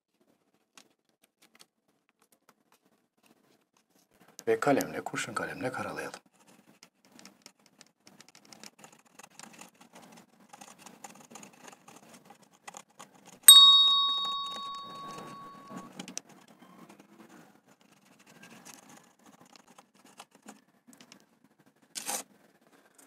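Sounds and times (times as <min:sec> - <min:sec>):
bell-like ding: 0:13.5 - 0:15.8.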